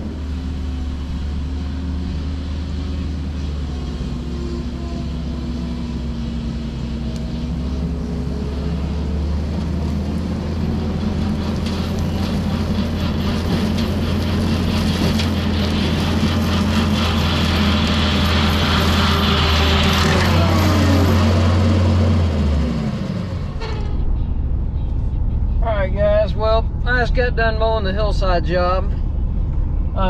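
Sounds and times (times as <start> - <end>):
diesel engine running: 0.0 - 30.0
rotary mower cutting grass: 0.1 - 22.9.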